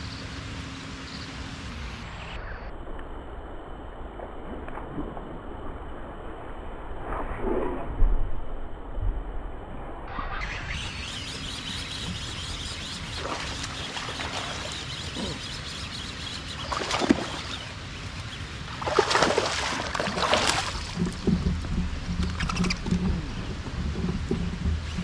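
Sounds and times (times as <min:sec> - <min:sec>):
low pulsing hum: 0:00.0 - 0:25.0
fish splashing at water surface: 0:18.8 - 0:21.5.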